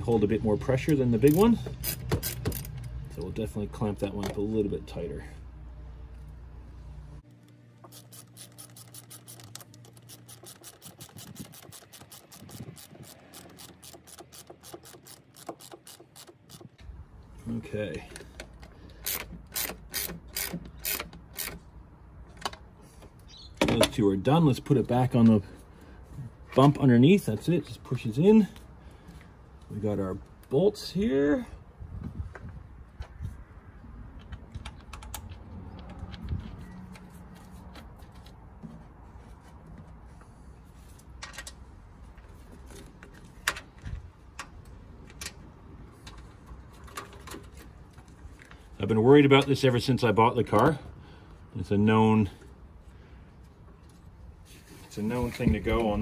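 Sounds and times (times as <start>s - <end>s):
socket ratchet clicking: 1.3s - 2.8s, 7.4s - 16.8s, 19.0s - 21.6s.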